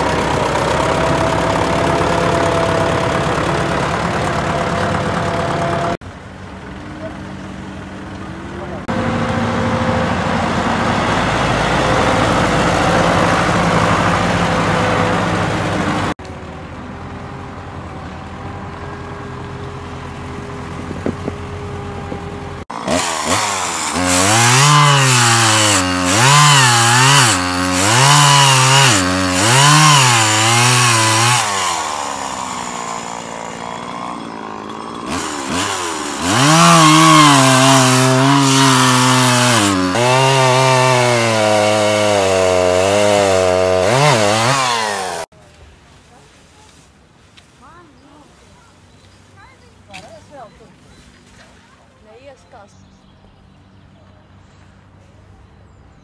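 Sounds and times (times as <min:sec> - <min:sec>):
chainsaw revving: 0:00.0 - 0:06.0, 0:08.8 - 0:16.2, 0:22.4 - 0:45.3
tractor engine running: 0:00.0 - 0:45.8.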